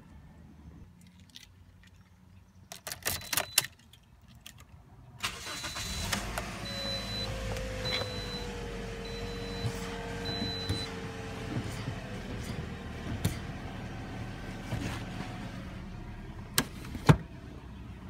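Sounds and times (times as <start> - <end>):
car engine starting and idling: 5.2 - 18.0
warning chime beeping: 6.7 - 10.9.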